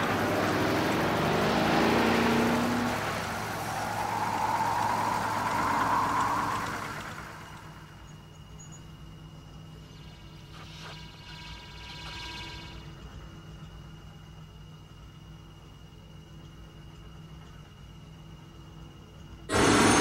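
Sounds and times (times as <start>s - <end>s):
rushing noise: 0.0s - 8.0s, 19.5s - 20.0s.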